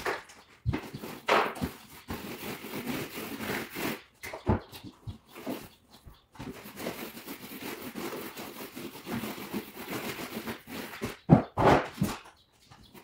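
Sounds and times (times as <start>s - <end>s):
paint roller swishing: 0.8s - 4.0s, 6.5s - 11.1s.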